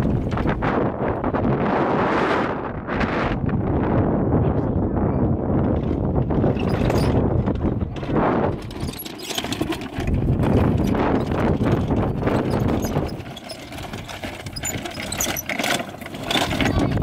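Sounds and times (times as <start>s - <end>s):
wind buffeting microphone: 0.0s - 17.0s
wooden wagons rattling over dirt: 5.5s - 17.0s.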